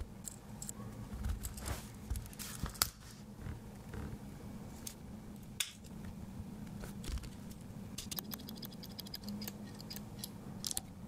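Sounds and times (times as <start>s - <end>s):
pocket knife tools clicking: 8.0s - 10.9s.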